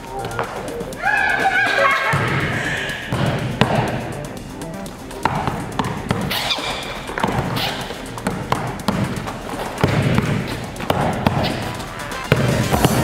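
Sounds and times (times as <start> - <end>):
basketball bouncing on court floor: 3.1 - 4.1, 5.2 - 13.0.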